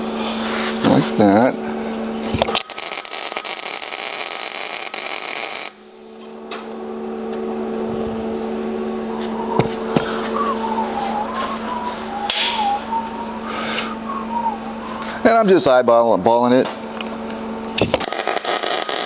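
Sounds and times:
steady low hum: 0.0s - 19.0s
welding arc crackling: 2.4s - 6.0s, 18.0s - 19.0s.

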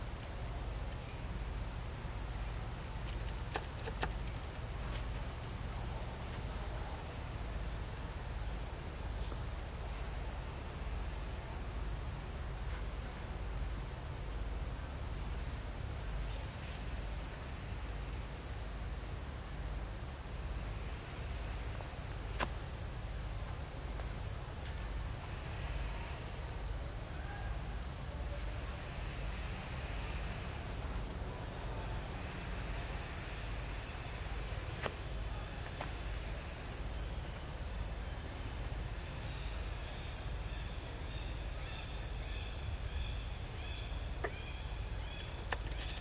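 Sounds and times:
insects chirring: 0.0s - 14.6s, 15.2s - 46.0s.

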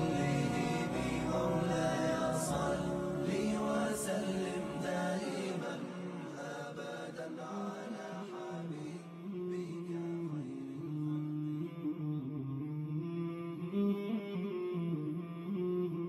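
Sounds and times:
voices singing devotional chant: 0.0s - 10.6s.

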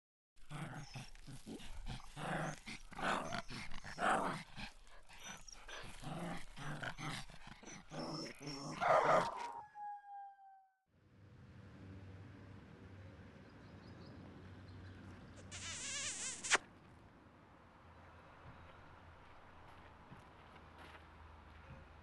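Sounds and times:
dogs barking and growling: 0.4s - 10.0s
dog whining: 7.7s - 10.6s.

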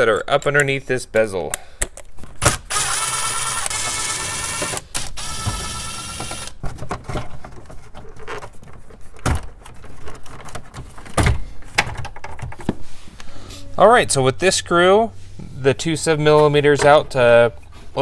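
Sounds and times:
cordless driver motor whine: 2.7s - 6.5s.

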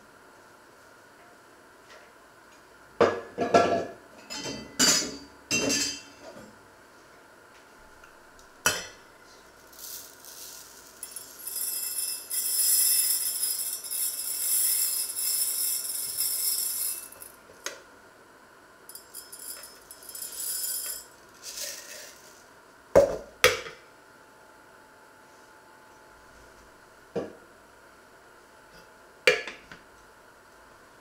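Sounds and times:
kitchenware clinking: 3.1s - 6.2s.

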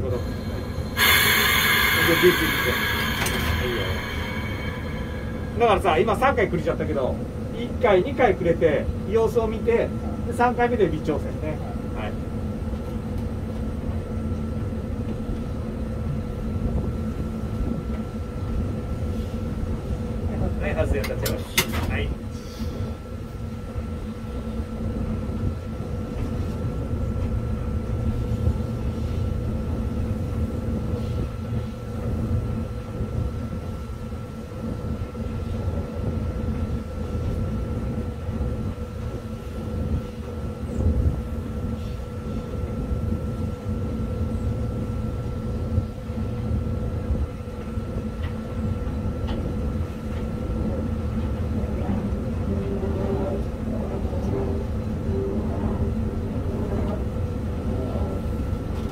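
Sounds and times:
locomotive rumble: 0.0s - 7.6s, 48.7s - 58.9s
constant tonal hum: 0.0s - 10.5s, 11.2s - 58.9s.

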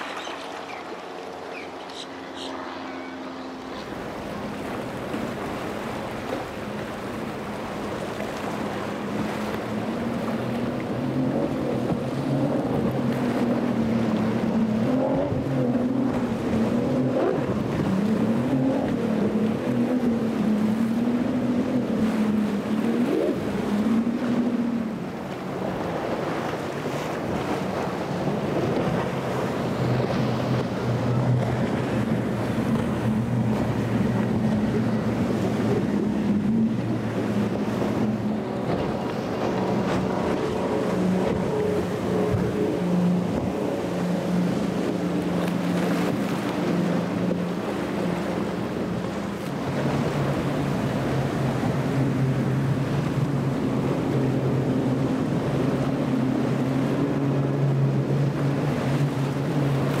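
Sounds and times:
boat engine drone: 0.0s - 60.0s
wind on microphone: 2.5s - 60.0s.

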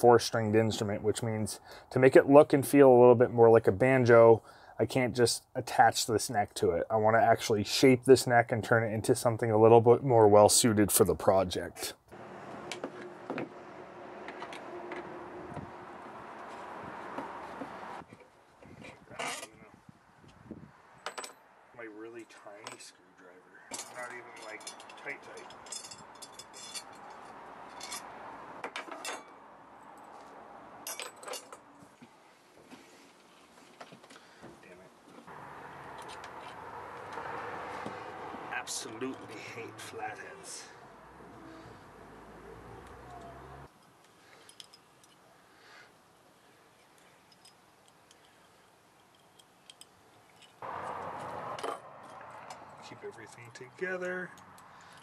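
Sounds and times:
small metallic clicks: 46.8s - 53.4s.

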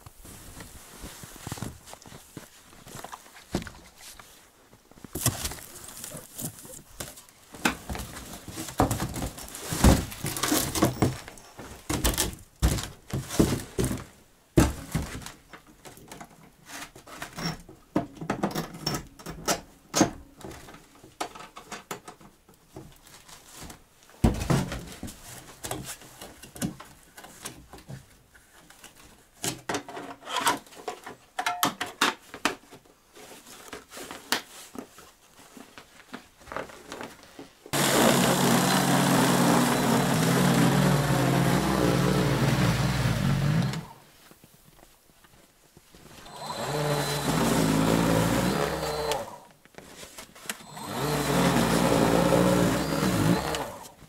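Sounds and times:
cardboard packaging rustling: 0.0s - 14.2s.

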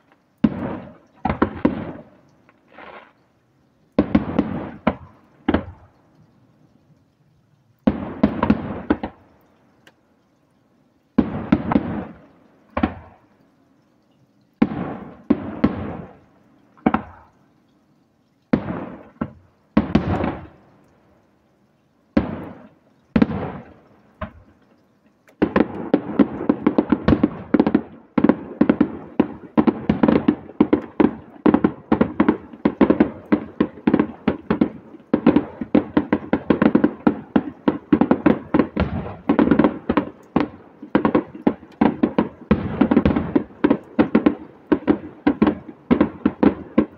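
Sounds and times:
firework bangs echoing: 0.0s - 2.2s, 4.0s - 5.9s, 7.9s - 9.2s, 11.2s - 13.2s, 14.6s - 16.2s, 18.5s - 20.6s, 22.1s - 24.5s, 25.3s - 46.9s.

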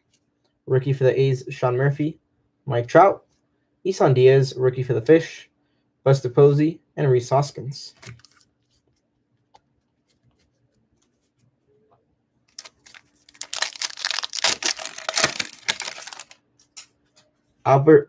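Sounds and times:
foil wrapper tearing and crinkling: 12.5s - 16.4s.

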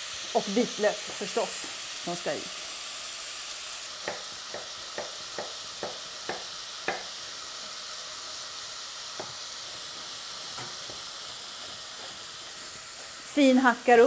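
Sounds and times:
meat sizzling in a pot: 0.0s - 14.0s.

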